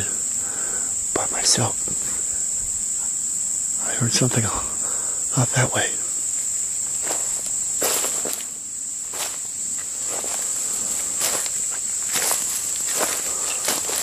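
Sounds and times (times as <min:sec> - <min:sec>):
insects droning: 0:00.0 - 0:14.0
footsteps on leaves: 0:06.3 - 0:14.0.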